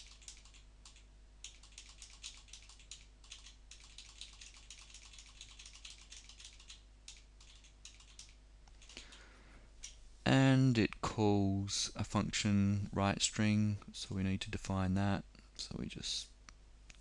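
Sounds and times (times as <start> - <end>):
keyboard typing: 0.0 - 9.2.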